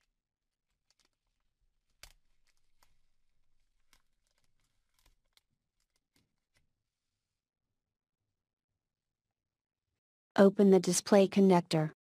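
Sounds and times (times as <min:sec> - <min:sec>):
label peeling crinkle: 0:00.7 - 0:06.6.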